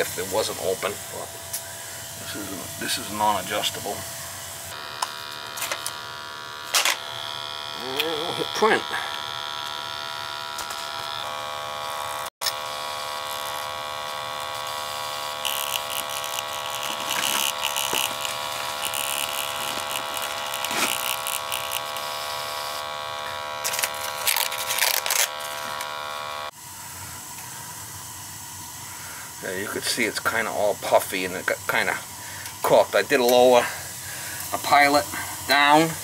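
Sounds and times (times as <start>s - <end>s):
printer motor whining buzz: 0.0s - 26.6s.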